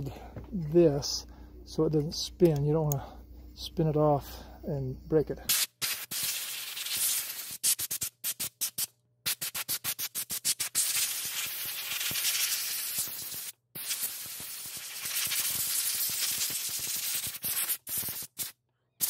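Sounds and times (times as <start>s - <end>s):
compressed air blow gun hissing: 5.5s - 18.5s.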